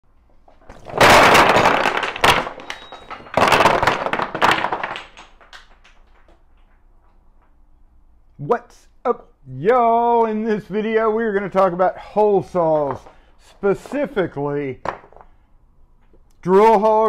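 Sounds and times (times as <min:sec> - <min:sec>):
wooden plugs clattering: 0:00.3 - 0:07.6, 0:12.4 - 0:13.2, 0:14.8 - 0:15.4.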